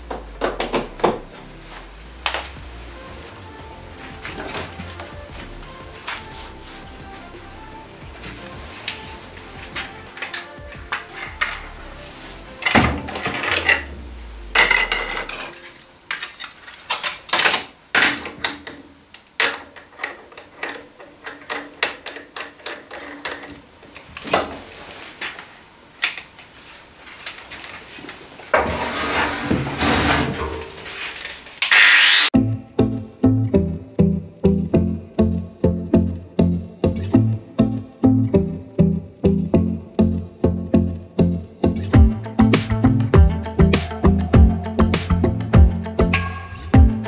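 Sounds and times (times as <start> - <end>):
loud scraping hiss: 26.5 - 32.4
tools clanking on sheet steel: 28.5 - 31.0.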